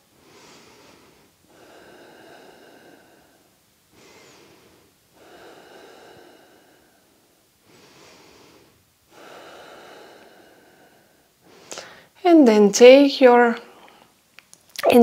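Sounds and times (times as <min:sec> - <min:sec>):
woman breathing deeply: 0:00.0 - 0:12.2.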